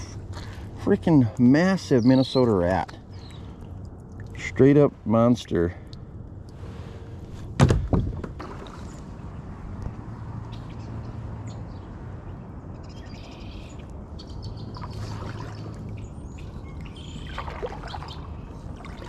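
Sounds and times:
birds chirping: 0:00.0 - 0:04.6, 0:10.2 - 0:19.0
water moving along hull: 0:14.5 - 0:19.0
kayak paddle dipping in water: 0:14.7 - 0:19.0.

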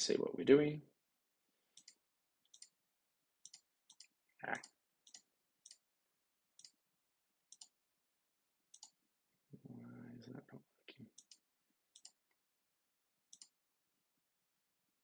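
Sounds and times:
computer mouse clicks: 0:01.7 - 0:02.8, 0:03.4 - 0:05.8, 0:06.6 - 0:06.8, 0:07.5 - 0:07.8, 0:08.7 - 0:09.0, 0:11.2 - 0:12.2, 0:13.3 - 0:13.6.

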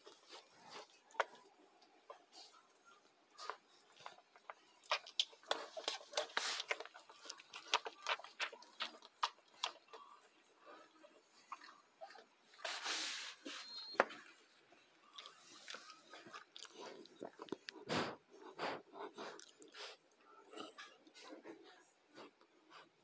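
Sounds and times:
puppies suckling wet smacking: 0:00.0 - 0:12.8.

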